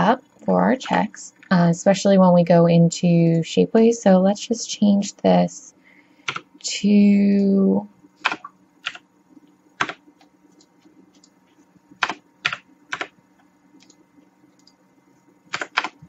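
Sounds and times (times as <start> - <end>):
computer keyboard keystrokes: 6.3 - 6.5, 8.2 - 9.0, 9.8 - 10.0, 12.0 - 13.1, 15.5 - 16.0.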